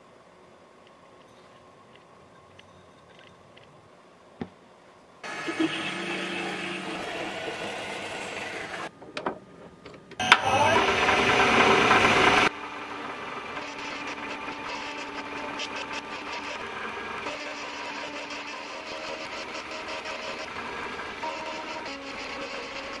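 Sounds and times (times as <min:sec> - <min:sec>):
loud burst of machine noise: 0:05.2 - 0:08.9, 0:10.2 - 0:23.0
metal lathe running: 0:05.2 - 0:08.9, 0:10.2 - 0:23.0
bandsaw cutting metal: 0:10.2 - 0:23.0.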